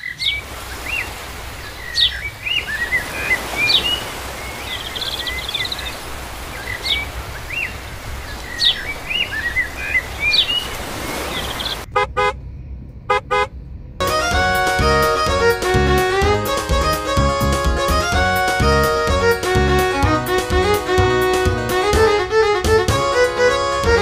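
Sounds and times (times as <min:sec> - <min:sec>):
birds singing: 0:00.0 - 0:11.9
steady low rumble: 0:11.8 - 0:15.0.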